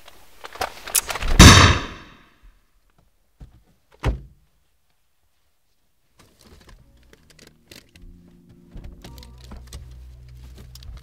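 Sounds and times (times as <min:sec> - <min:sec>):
sharp thud: 0:01.4 - 0:02.2.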